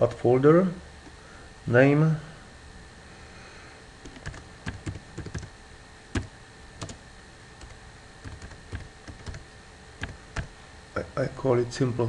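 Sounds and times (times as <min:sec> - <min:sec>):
typing on computer keyboard: 0:04.0 - 0:05.5, 0:06.2 - 0:07.0, 0:07.6 - 0:09.4, 0:10.0 - 0:10.5.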